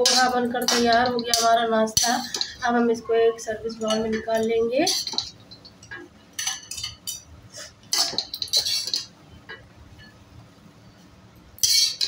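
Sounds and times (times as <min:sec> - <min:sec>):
steel spoon scraping metal pan: 0:00.0 - 0:02.7, 0:03.8 - 0:05.6, 0:06.4 - 0:09.1, 0:11.6 - 0:12.0.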